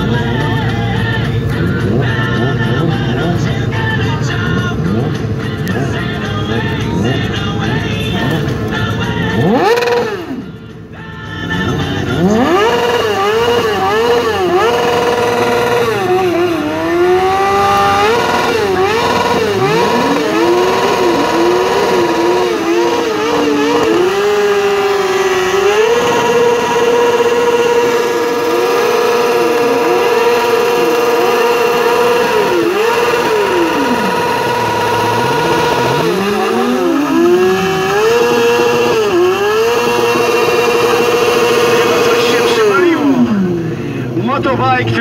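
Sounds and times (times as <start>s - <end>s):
motorcycle engines revving: 0.0s - 45.0s.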